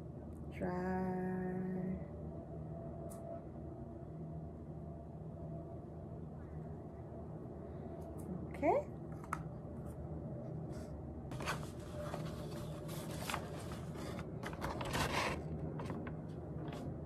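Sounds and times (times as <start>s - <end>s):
low hum: 0.0s - 17.0s
paper rustle: 11.3s - 17.0s
paper scraping and handling: 11.3s - 17.0s.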